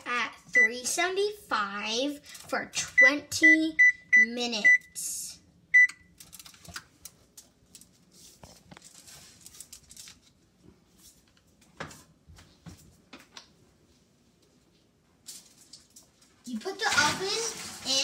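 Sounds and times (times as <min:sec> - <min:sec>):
oven control panel beep: 0:00.6 - 0:00.8, 0:03.0 - 0:04.9, 0:05.7 - 0:06.1
aluminum foil crinkling: 0:06.2 - 0:11.4, 0:15.2 - 0:17.4.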